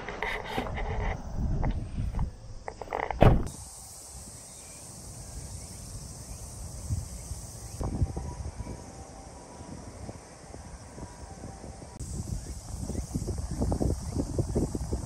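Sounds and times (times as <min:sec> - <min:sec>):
loud thump: 0:03.1 - 0:03.5.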